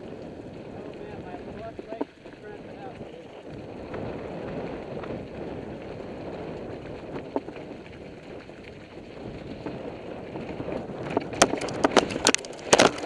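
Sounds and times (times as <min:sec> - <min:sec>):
bike rattling: 0:00.0 - 0:13.0
bike tyres crunching gravel: 0:00.0 - 0:13.0.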